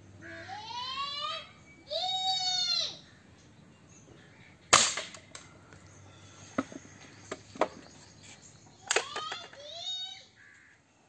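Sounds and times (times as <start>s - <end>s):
air rifle shot: 4.7s - 5.3s.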